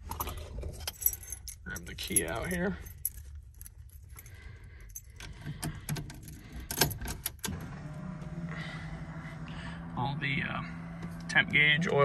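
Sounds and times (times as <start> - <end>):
car keys jangling: 0.0 - 7.5
low ignition hum: 0.0 - 12.0.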